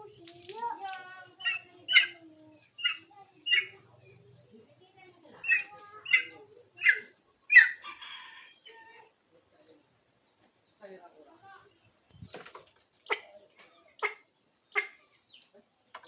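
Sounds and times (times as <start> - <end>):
junglefowl sharp calls: 1.4 - 2.2, 2.8 - 3.9, 5.4 - 9.1, 13.0 - 13.3, 14.0 - 15.1.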